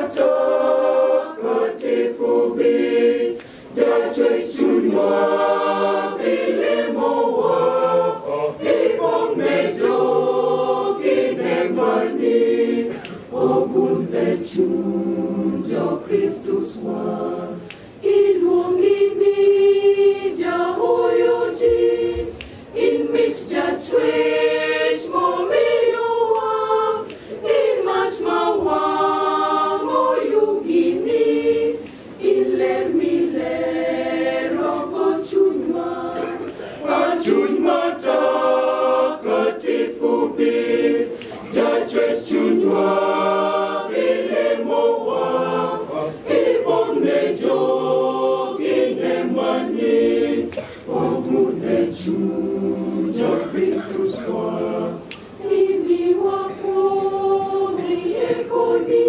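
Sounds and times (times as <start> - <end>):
mixed choir singing a cappella: 0.0 - 59.0.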